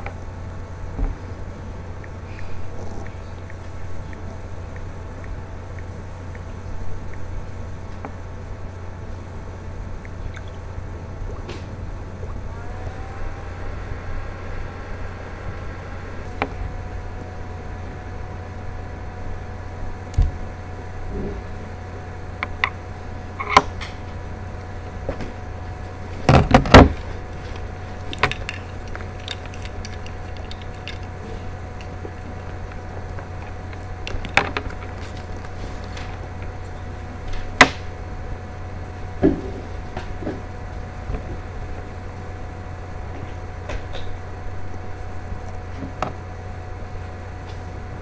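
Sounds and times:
low electrical hum: 0.0s - 48.0s.

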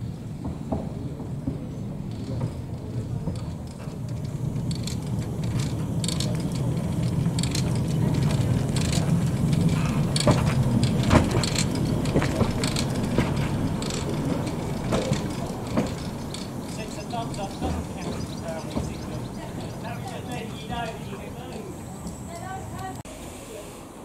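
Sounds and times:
steam locomotive rumbling: 0.0s - 24.0s
metallic clanks and clicks: 2.1s - 23.0s.

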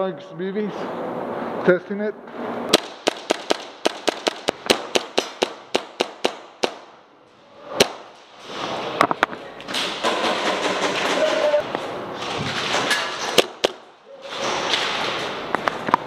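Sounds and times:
airsoft guns firing: 2.7s - 7.0s, 9.9s - 11.6s, 12.6s - 13.9s.

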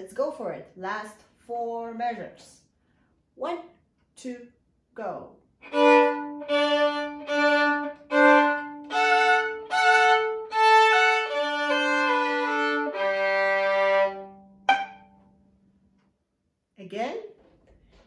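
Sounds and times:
violin playing double stops: 5.6s - 15.4s
violin pizzicato note: 5.6s - 15.5s.

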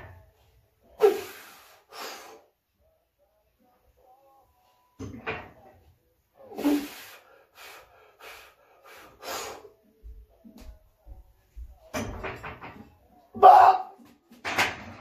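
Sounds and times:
man breathing forcefully: 6.6s - 9.8s.

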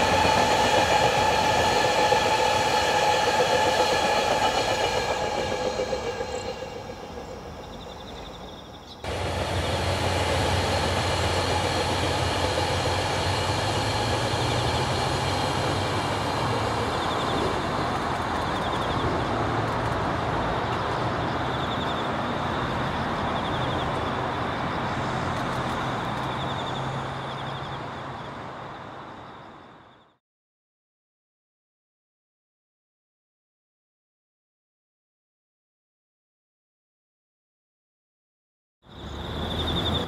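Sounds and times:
train wheels rumbling on rail: 0.0s - 29.9s, 38.9s - 40.0s
low locomotive engine hum: 0.0s - 30.2s, 38.9s - 40.0s.

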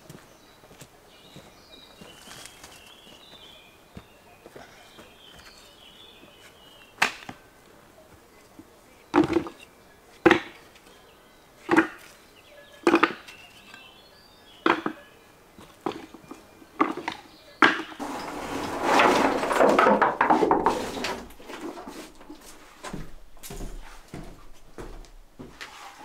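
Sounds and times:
stones clacking into plastic bucket: 9.1s - 9.6s, 12.8s - 13.3s, 15.6s - 22.4s
stones rattling: 16.8s - 22.4s.

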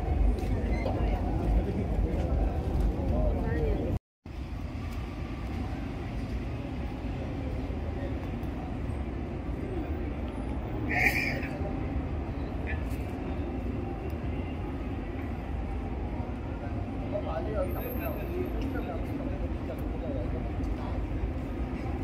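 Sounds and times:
faint crowd murmur: 0.0s - 4.0s, 5.4s - 22.0s
traffic rumble: 0.0s - 22.0s.

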